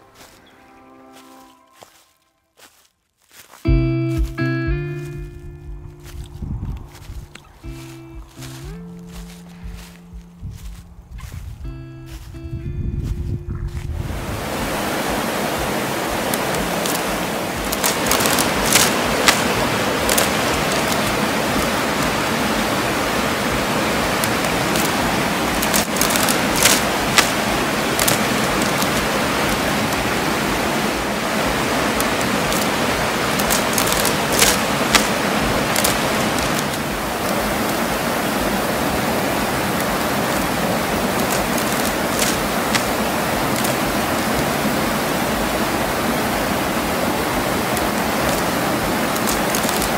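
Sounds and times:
stream rushing over rocks: 0:07.0 - 0:10.8, 0:13.8 - 0:49.9
water splashes: 0:13.8 - 0:49.9.

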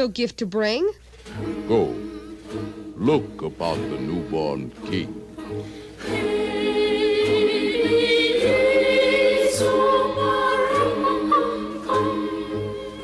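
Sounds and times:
choir singing sustained notes: 0:01.3 - 0:13.0.

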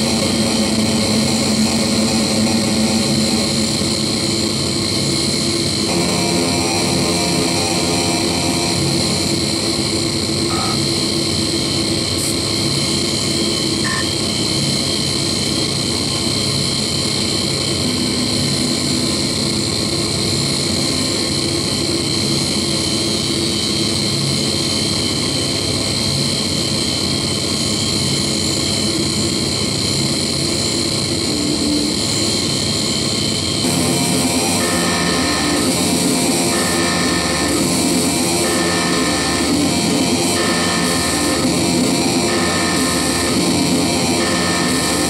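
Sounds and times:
harsh electronic noise music: 0:00.0 - 0:11.4, 0:33.6 - 0:45.0.

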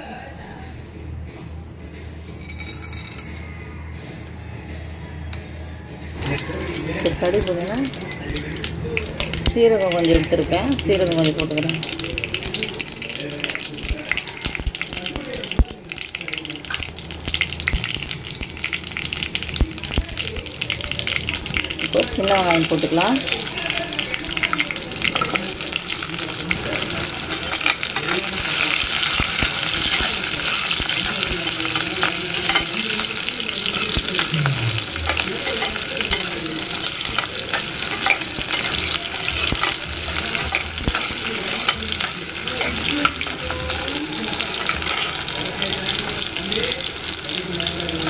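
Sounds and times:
shallots sizzling in hot oil: 0:06.2 - 0:48.0
spoon scraping a pan: 0:22.0 - 0:45.4.

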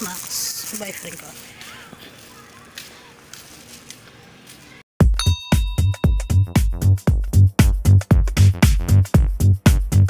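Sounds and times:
chime-like note: 0:05.2 - 0:07.0.

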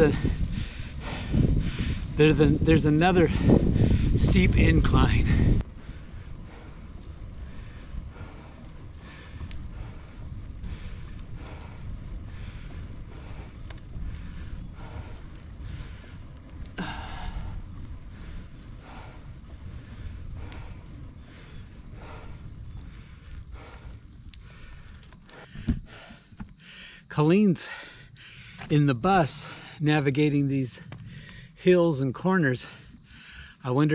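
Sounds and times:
person breathing hard: 0:00.0 - 0:02.2, 0:03.2 - 0:04.2, 0:05.2 - 0:28.7, 0:30.9 - 0:31.6, 0:32.6 - 0:33.7
wind on microphone: 0:00.0 - 0:26.3
insect drone: 0:00.0 - 0:33.9.

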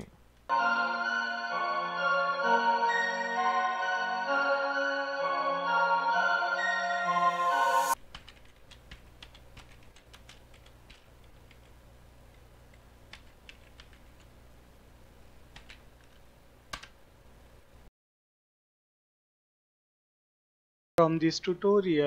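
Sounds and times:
music: 0:00.5 - 0:08.0
keyboard typing: 0:08.0 - 0:14.3, 0:15.5 - 0:17.0.

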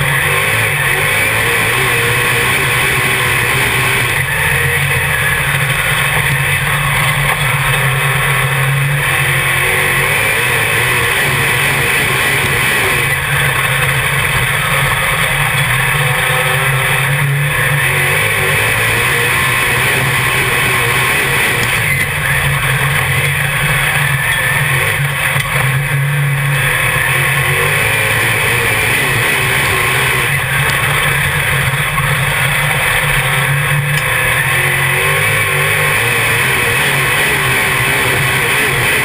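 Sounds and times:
race car engine drone: 0:00.0 - 0:39.0.

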